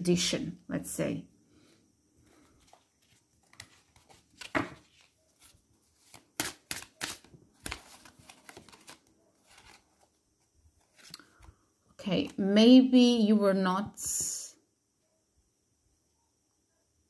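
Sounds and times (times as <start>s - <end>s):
cards snapping and tapping: 6.0s - 9.0s.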